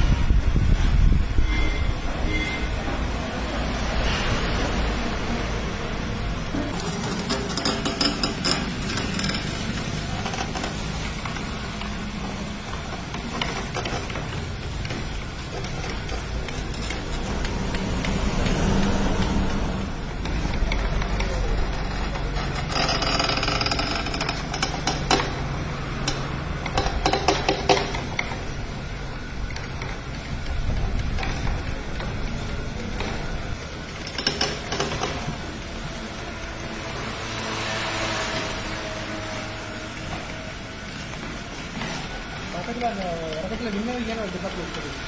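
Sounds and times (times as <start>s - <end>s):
stone press grinding rumble: 6.1s - 38.8s.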